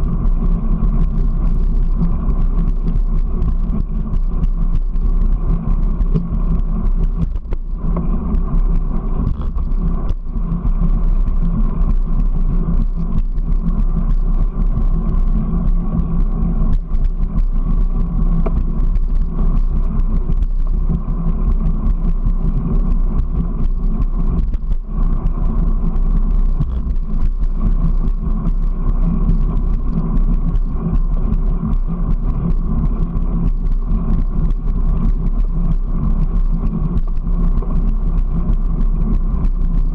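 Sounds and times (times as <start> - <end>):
motor hum: 0.0 - 39.9
wheels rumbling on concrete: 0.0 - 39.9.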